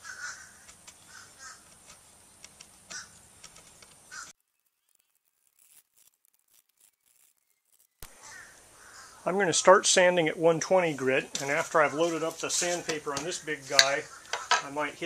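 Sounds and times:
bird calls: 0.0s - 5.2s, 6.9s - 9.4s, 11.4s - 14.9s
sandpaper scratching on wood: 4.9s - 8.0s.

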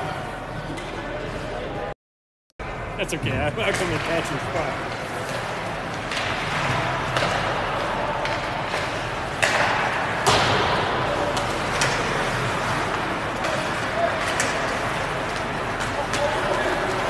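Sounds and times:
ice rink noise: 0.0s - 1.9s, 2.6s - 17.0s
hockey sticks knocking puck: 3.6s - 17.0s.

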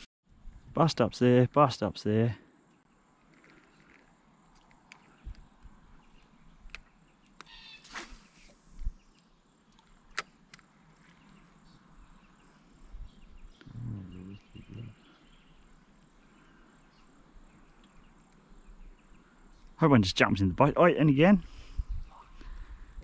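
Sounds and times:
fishing rod cast whooshing: 7.8s - 8.9s.

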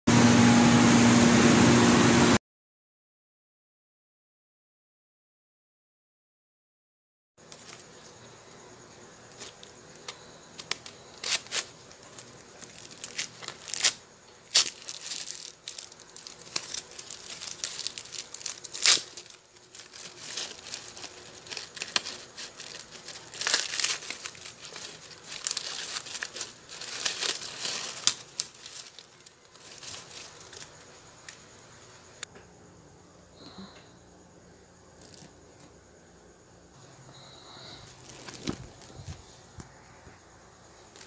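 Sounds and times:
corn husks tearing and rustling: 9.2s - 31.6s, 35.0s - 35.7s, 37.8s - 39.3s.

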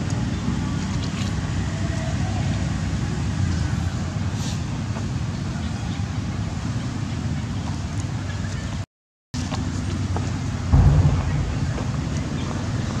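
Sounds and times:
low rumbling background noise: 9.6s - 13.0s.

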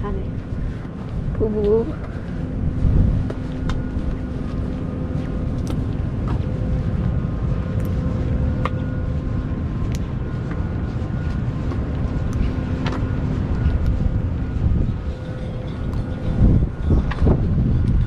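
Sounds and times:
faint steady hum: 0.0s - 18.0s
wind buffeting microphone: 0.0s - 18.0s.

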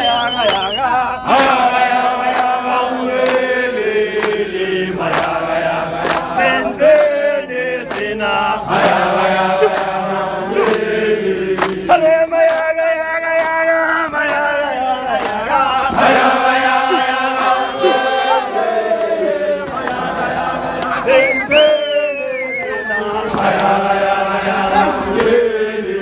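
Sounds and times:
hand claps: 0.0s - 2.6s, 3.2s - 8.2s, 8.8s - 10.9s, 11.5s - 18.0s, 22.7s - 23.8s, 25.2s - 25.4s
men singing together: 0.0s - 26.0s.

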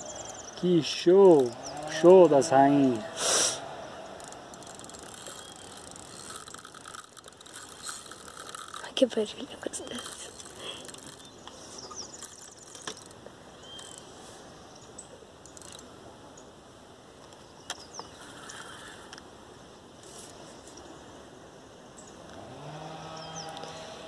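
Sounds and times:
faint hiss: 3.1s - 3.7s
small clicks: 4.2s - 9.0s, 9.8s - 14.0s.

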